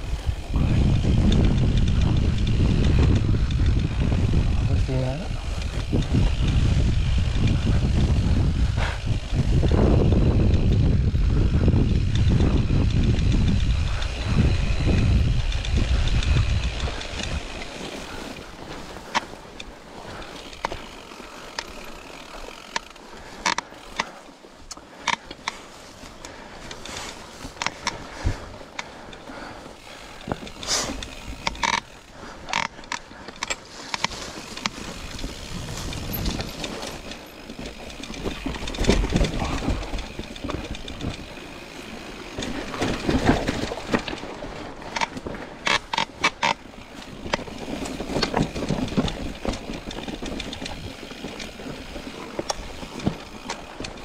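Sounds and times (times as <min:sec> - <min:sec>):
rumbling rush of noise: 0:00.0 - 0:18.2
bike clicking and rattling: 0:00.0 - 0:54.0.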